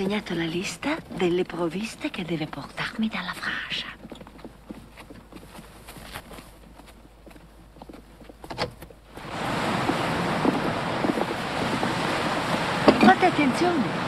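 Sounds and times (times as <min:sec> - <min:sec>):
surf breaking on stony shore: 0:09.2 - 0:14.0.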